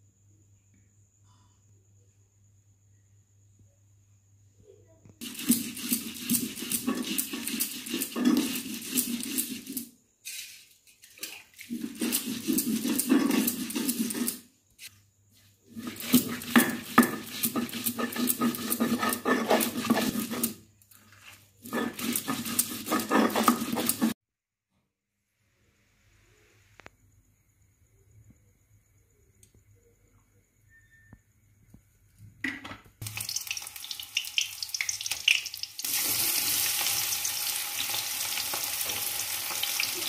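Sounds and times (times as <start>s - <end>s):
stone roller grinding on stone: 5.2s - 9.9s, 11.7s - 14.4s, 15.7s - 24.2s.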